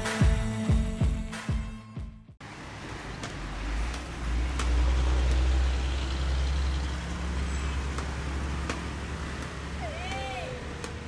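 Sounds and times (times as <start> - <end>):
truck diesel engine rumbling: 2.5 - 11.0.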